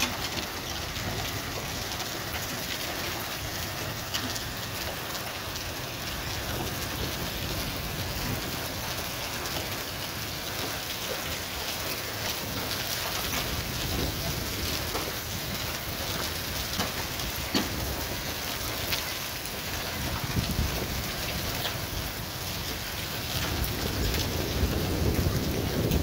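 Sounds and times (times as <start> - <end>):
hailstones ticking: 0.0 - 26.0
heavy rain hissing: 0.0 - 26.0.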